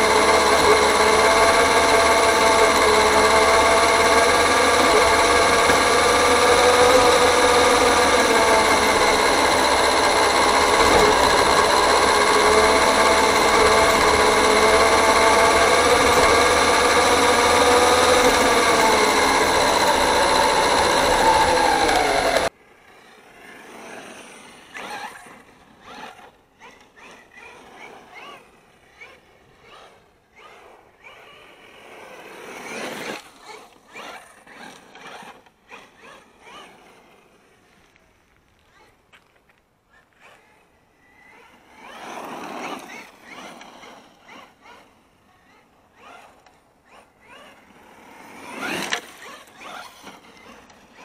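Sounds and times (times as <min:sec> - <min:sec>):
electric motor whining: 0:00.0 - 0:22.5.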